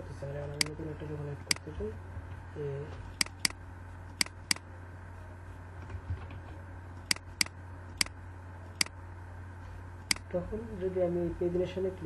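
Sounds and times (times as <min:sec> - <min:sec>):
steady low hum: 0:00.0 - 0:12.0
computer mouse clicking: 0:00.6 - 0:00.8, 0:03.2 - 0:03.6, 0:04.2 - 0:04.6, 0:07.0 - 0:09.0.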